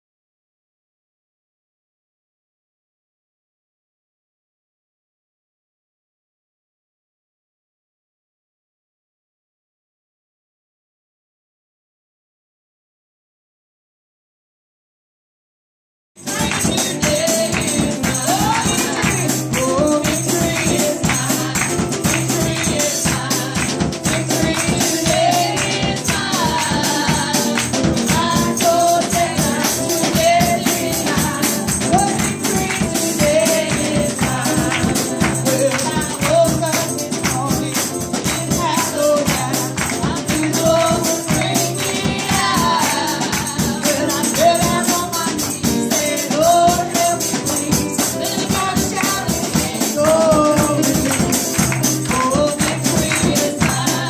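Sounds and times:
percussion beat with tambourine: 16.2 - 54.0
person singing: 16.2 - 54.0.

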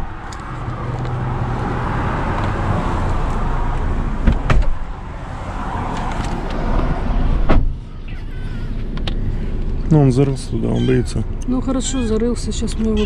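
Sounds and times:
road traffic noise: 0.0 - 13.0
van door click: 4.2 - 4.8.

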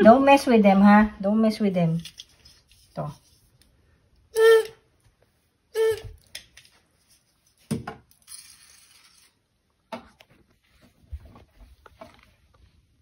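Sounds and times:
squeaker dog toy squeaks: 4.4 - 4.8, 5.8 - 6.2.

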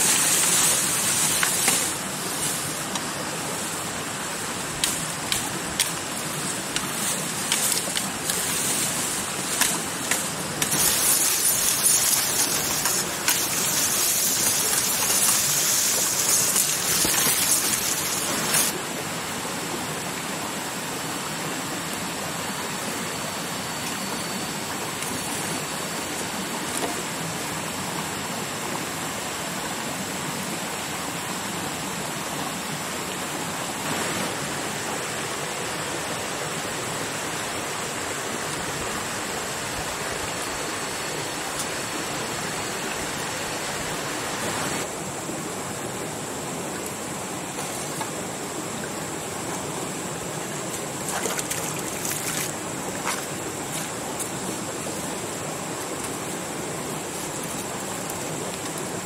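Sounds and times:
stream water rushing: 0.0 - 59.0.

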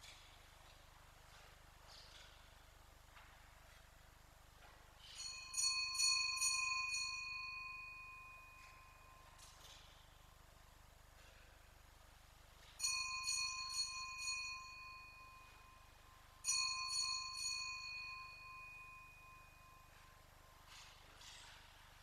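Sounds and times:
small bells ringing: 5.0 - 10.2, 12.6 - 21.6.

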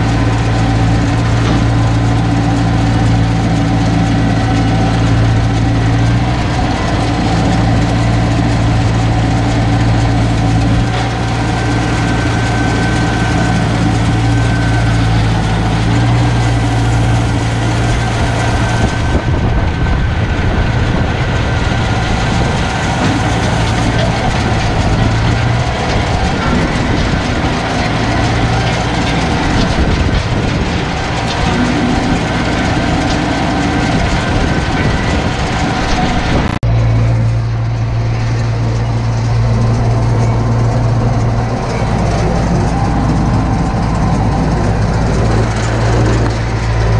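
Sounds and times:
baler mechanical rattle: 0.0 - 46.9
tractor engine drone: 0.0 - 46.9.

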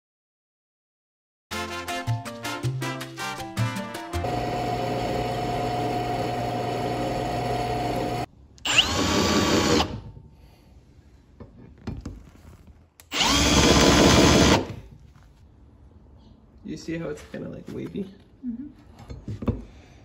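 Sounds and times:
drill press boring through steel: 4.2 - 10.0, 13.1 - 14.7
handheld drill whining and chattering: 4.2 - 10.0, 13.0 - 14.8.

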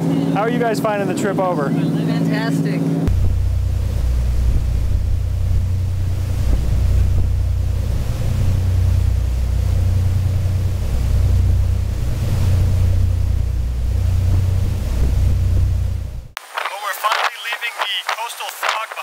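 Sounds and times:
rush of the sea: 0.0 - 19.0
wind buffeting microphone: 3.0 - 17.3.

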